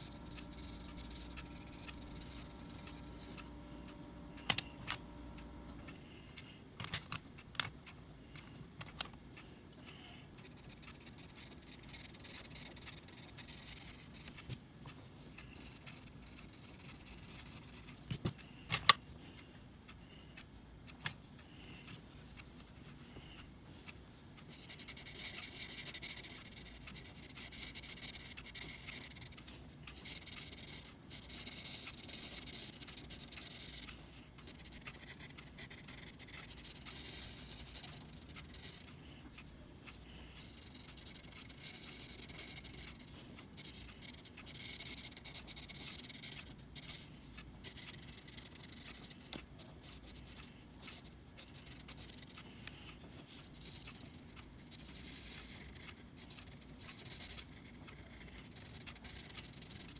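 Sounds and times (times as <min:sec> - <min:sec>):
pencil scratching on paper: 0:00.0 - 0:03.5, 0:10.4 - 0:14.6, 0:15.4 - 0:18.4, 0:24.5 - 0:39.1, 0:40.1 - 0:59.9.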